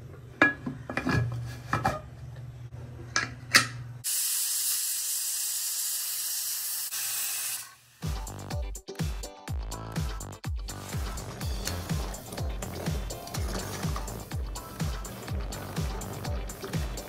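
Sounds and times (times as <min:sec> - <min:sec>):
pressure cooker whistling: 0:04.0 - 0:07.8.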